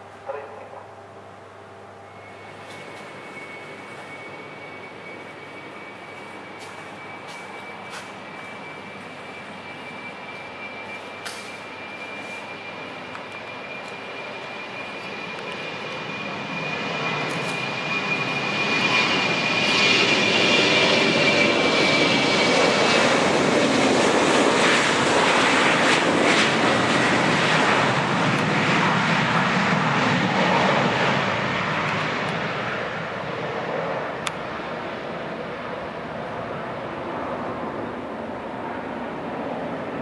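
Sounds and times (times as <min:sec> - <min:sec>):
high fan whine: 0:00.0 - 0:22.0
jet engines at takeoff: 0:00.0 - 0:40.0.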